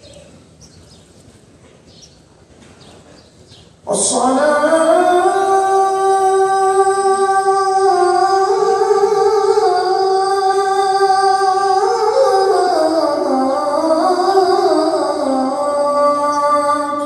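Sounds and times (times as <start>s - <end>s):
person singing devotional song: 3.9s - 17.0s.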